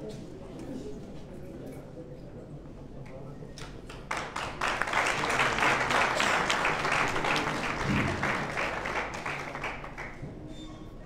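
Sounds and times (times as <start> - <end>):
audience applauding: 3.9 - 10.3.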